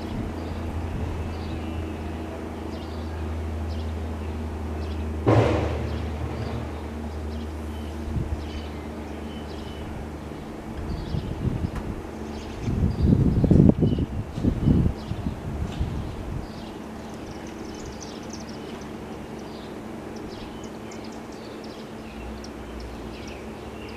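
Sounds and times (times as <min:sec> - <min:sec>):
sudden loud burst of noise: 0:05.2 - 0:07.8.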